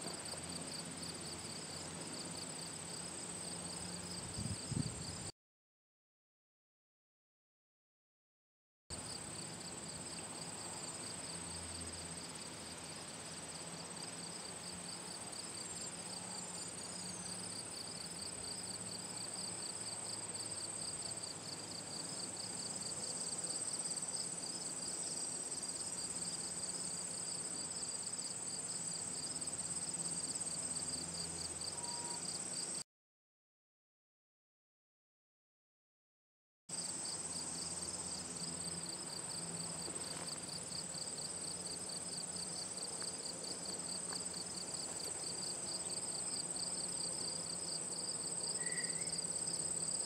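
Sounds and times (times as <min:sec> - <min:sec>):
high-pitched insect trill: 0:09.0 - 0:32.8, 0:36.8 - 0:50.0
pulsing insect trill: 0:22.4 - 0:32.7, 0:43.7 - 0:50.0.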